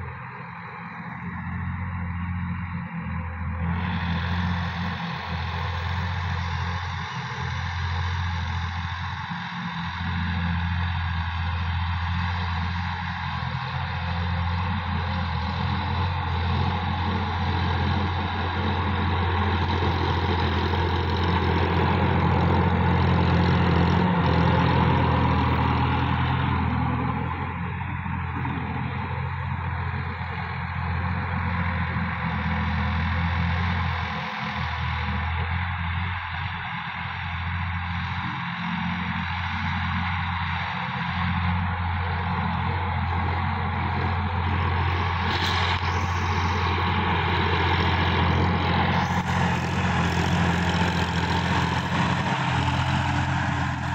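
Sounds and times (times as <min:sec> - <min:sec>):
diesel tractor engine running: 0:00.0 - 0:53.9
rotary tiller churning soil: 0:14.6 - 0:27.4, 0:42.3 - 0:53.9.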